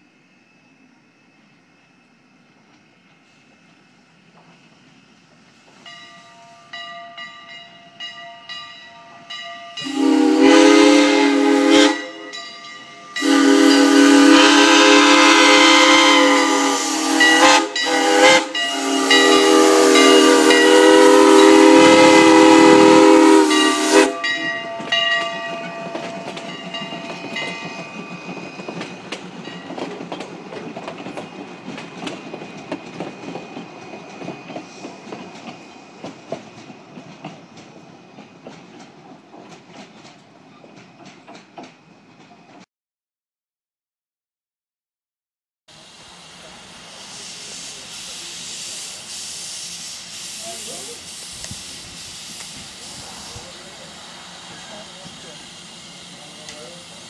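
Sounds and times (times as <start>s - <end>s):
steam locomotive whistle blasts: 9.8s - 12.5s, 13.1s - 28.9s
hissing steam: 9.8s - 37.5s, 45.7s - 57.0s
rail clatter: 24.0s - 42.6s.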